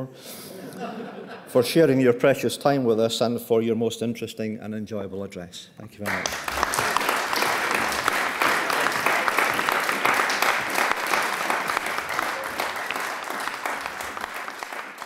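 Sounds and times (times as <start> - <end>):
audience clapping: 6.0 - 15.0.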